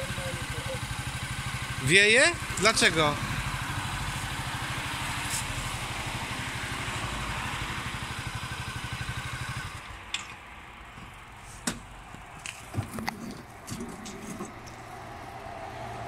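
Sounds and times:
scooter engine idling: 0:00.0 - 0:12.0.

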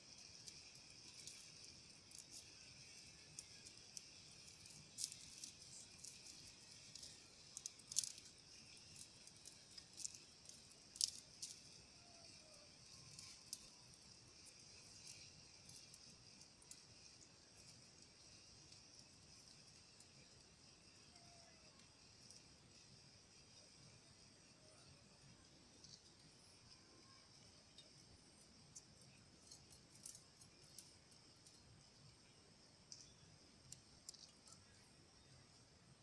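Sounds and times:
sharp high ticks: 0:00.0 - 0:22.9
insects chorus: 0:00.0 - 0:36.0.

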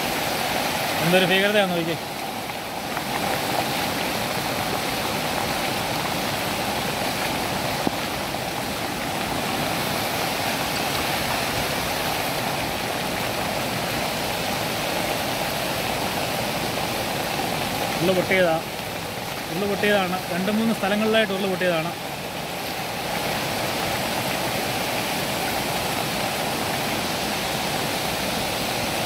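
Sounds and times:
floodwater rushing: 0:00.0 - 0:29.0.

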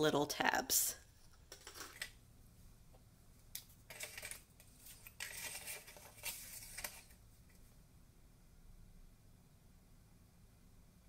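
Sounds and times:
paper strip rustling: 0:03.9 - 0:07.2.

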